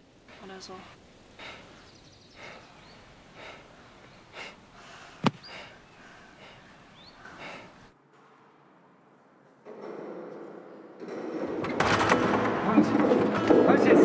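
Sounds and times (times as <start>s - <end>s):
people breathing hard: 0.3s - 7.9s.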